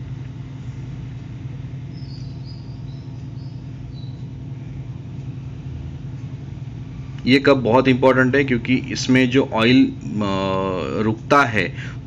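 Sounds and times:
machinery hum: 0.0 - 12.0
faint high bird chirps: 1.7 - 4.9.

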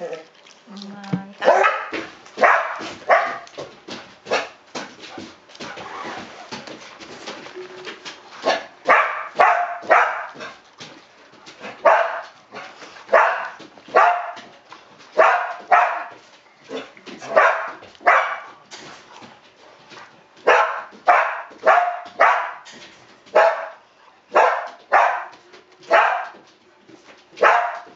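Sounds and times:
dog barking: 1.4 - 3.5, 4.3 - 4.6, 8.4 - 10.6, 11.6 - 14.5, 15.2 - 18.6, 20.4 - 22.6, 23.3 - 26.4, 27.4 - 27.9.

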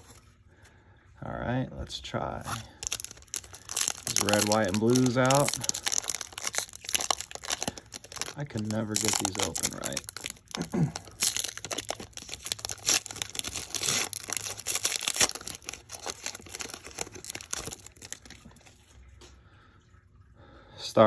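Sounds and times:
foil wrapper tearing and crinkling: 2.8 - 18.6.

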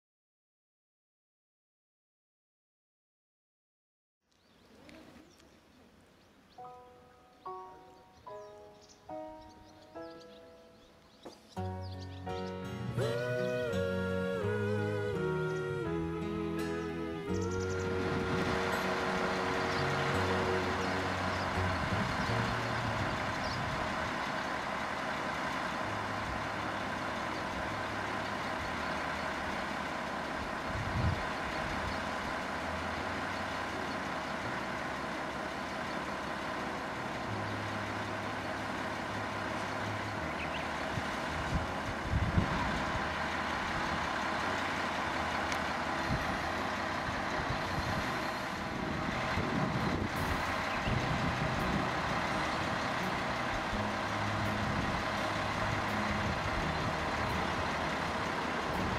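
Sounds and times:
steam locomotive machinery hum: 7.5 - 58.9
low hum: 12.4 - 58.9.

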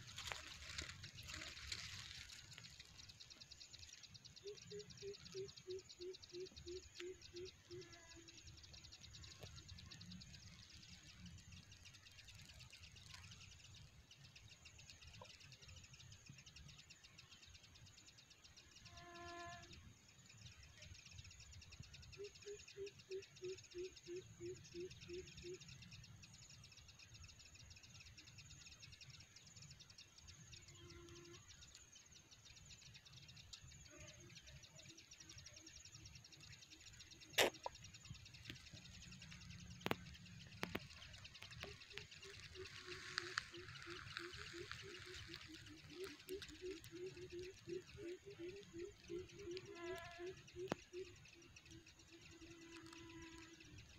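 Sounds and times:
insect trill: 0.0 - 53.9
bird hooting: 41.6 - 51.2.

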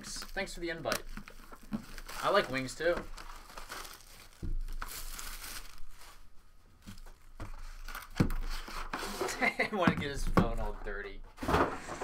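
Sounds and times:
cardboard packaging crinkling: 0.0 - 9.4.

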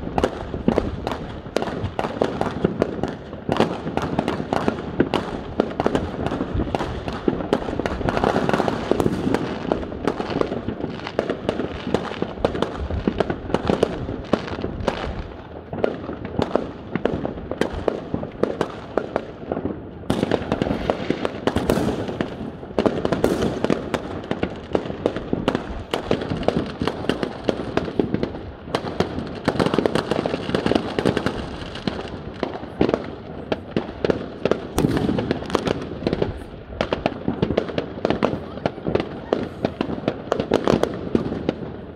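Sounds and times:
fireworks bangs and crackling: 0.0 - 41.9.

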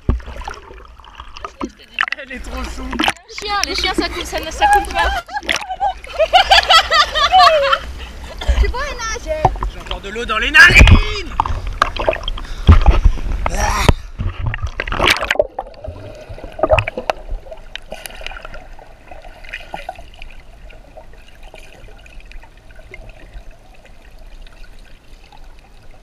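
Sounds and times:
faint underwater clicks and crackles: 0.0 - 5.8, 8.3 - 10.1, 10.8 - 26.0
water splashing against camera: 0.0 - 6.1, 10.6 - 20.4.

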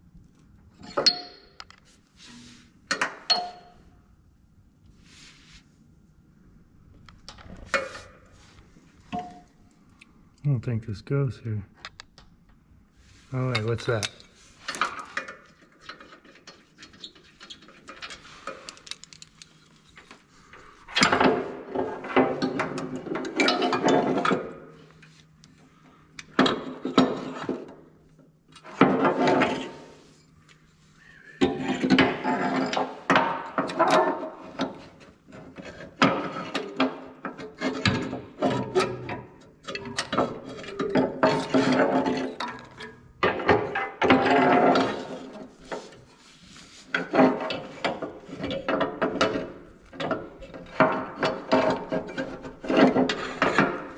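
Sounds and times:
metal and plastic parts scraping: 13.4 - 24.5, 31.4 - 53.9.

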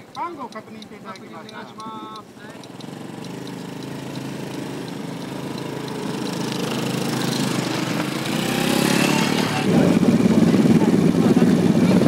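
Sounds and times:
motorcycle engine pulling away: 2.6 - 12.0.

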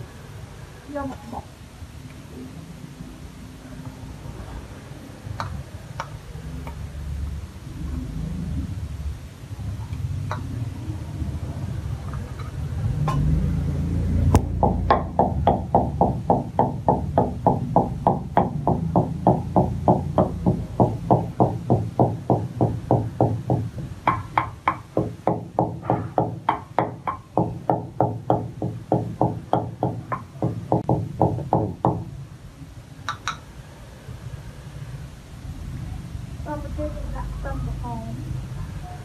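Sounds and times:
wooden pestle pounding seeds: 14.4 - 32.1.

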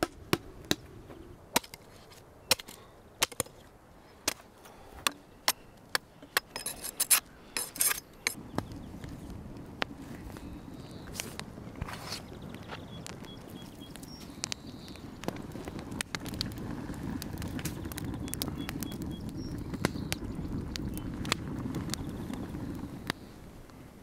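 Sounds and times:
rasping knife strokes: 6.5 - 8.4.

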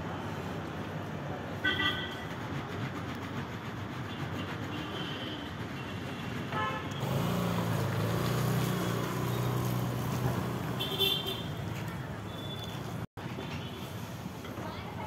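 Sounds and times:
vehicle engine running: 7.0 - 10.8.

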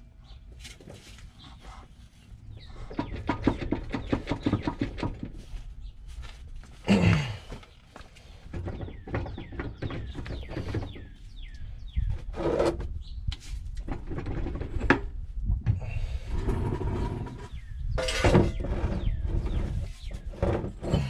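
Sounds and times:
metal knocks and scraping: 13.8 - 21.0.

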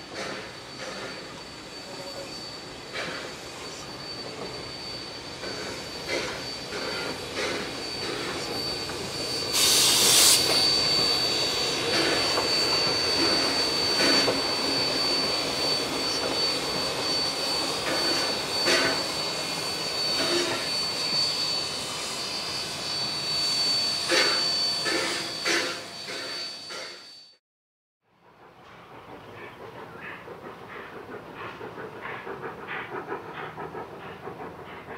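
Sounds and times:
steam hissing: 0.0 - 27.0, 28.4 - 34.9
loud burst of steam: 4.8 - 15.1.

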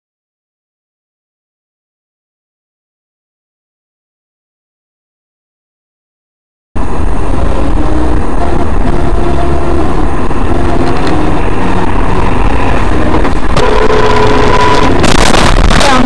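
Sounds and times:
car engine and road noise: 6.8 - 16.0.

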